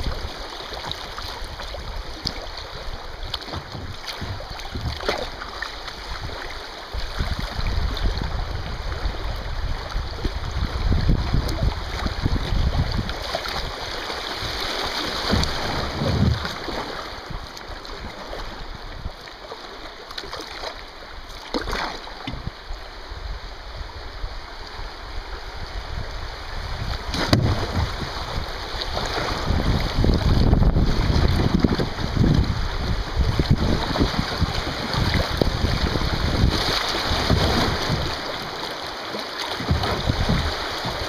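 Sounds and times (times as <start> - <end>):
river rushing and splashing: 0.0 - 41.0
wind buffeting microphone: 1.4 - 5.3, 6.0 - 13.8, 15.2 - 18.0, 25.2 - 38.6, 39.6 - 41.0.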